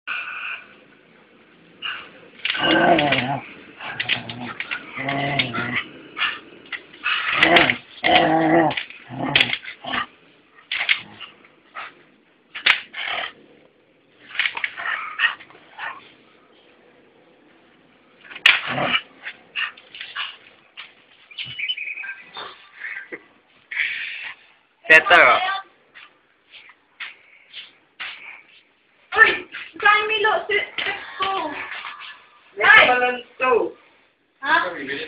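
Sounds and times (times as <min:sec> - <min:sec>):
dog barking and whining: 0:01.8 - 0:06.4.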